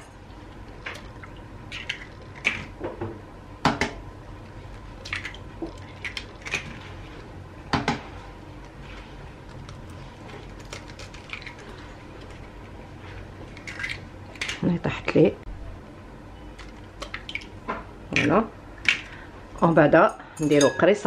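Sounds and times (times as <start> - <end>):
eggs cracking against a bowl: 0.5 - 2.9, 4.7 - 8.0, 9.4 - 14.8, 16.6 - 19.3.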